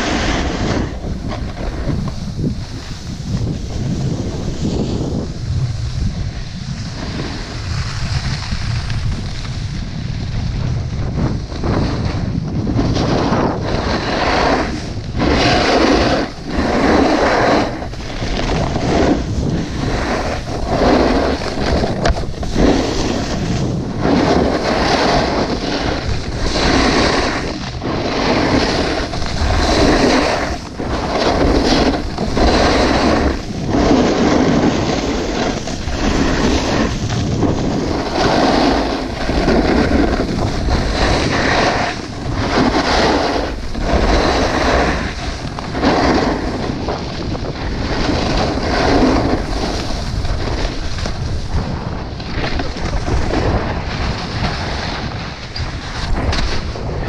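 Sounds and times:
snowboard edges scraping snow: 0:00.0 - 0:57.0
wind buffeting microphone: 0:00.0 - 0:57.0.

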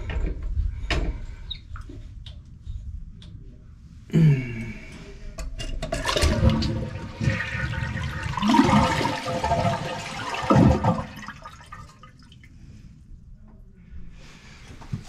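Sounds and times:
toilet flushing: 0:05.9 - 0:12.3.

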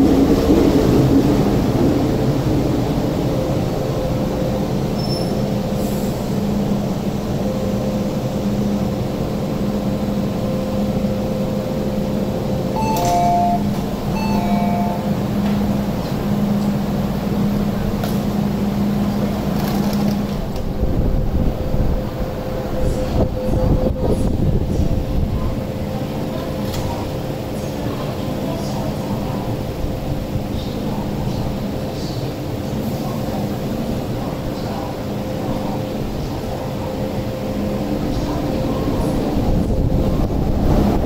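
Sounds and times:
electric train hum: 0:00.0 - 0:41.0
two-note chime: 0:12.8 - 0:15.3.

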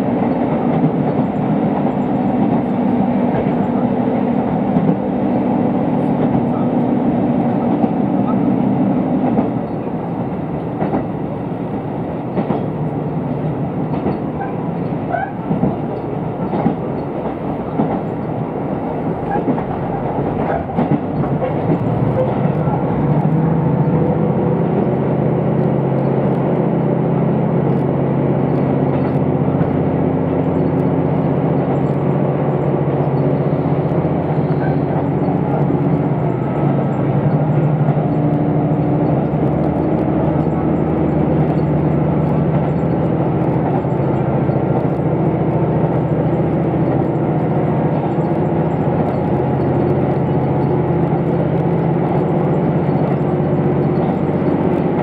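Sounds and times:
diesel engine drone: 0:00.0 - 0:55.0
wheels rumbling on rail: 0:00.0 - 0:55.0.

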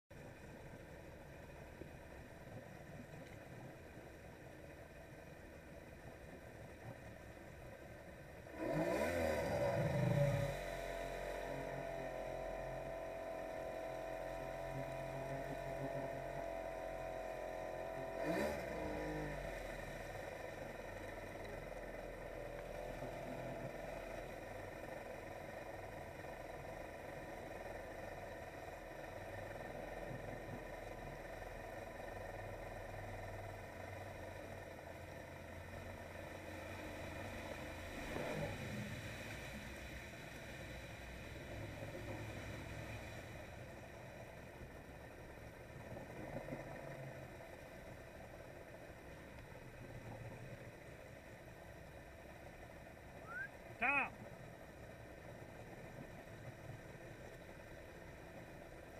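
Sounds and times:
watercraft engine revving: 0:08.4 - 0:44.6.

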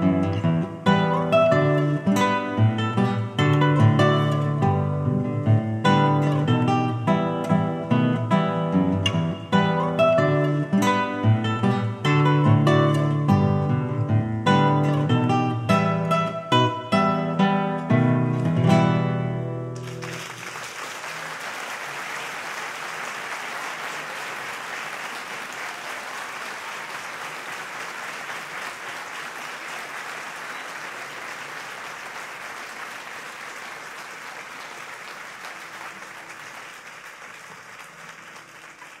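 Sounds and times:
classical guitar chords: 0:00.0 - 0:19.9
audience applauding: 0:19.8 - 0:39.0.

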